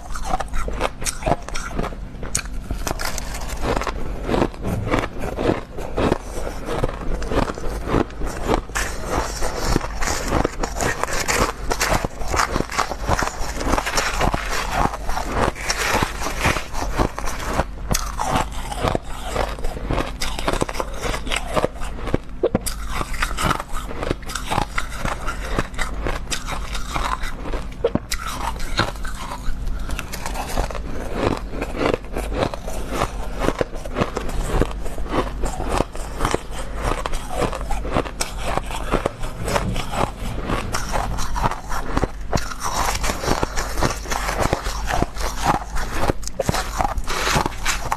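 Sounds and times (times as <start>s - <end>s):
metal spoon scraping ice: 0.0s - 21.6s
chewing crushed ice: 0.0s - 47.9s.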